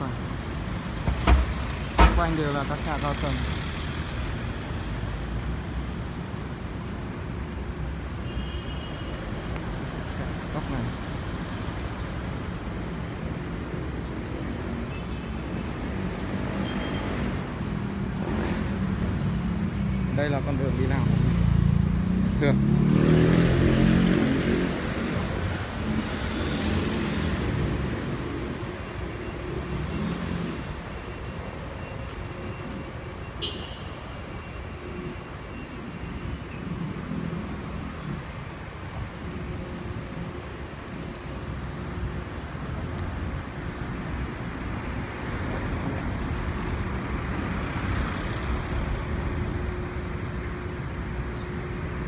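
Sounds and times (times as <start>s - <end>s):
vehicles driving past: 0.0s - 8.2s, 9.0s - 52.0s.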